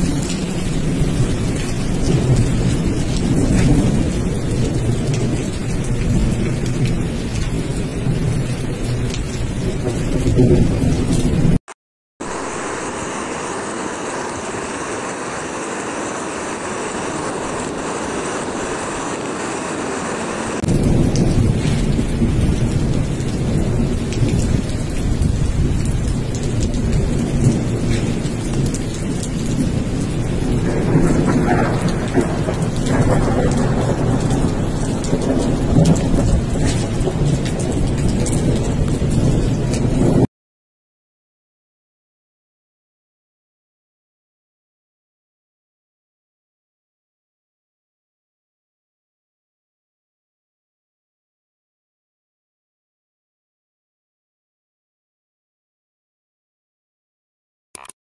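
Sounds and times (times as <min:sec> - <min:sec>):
heavy rain hissing: 0:12.2 - 0:40.2
runoff water rushing: 0:12.2 - 0:40.3.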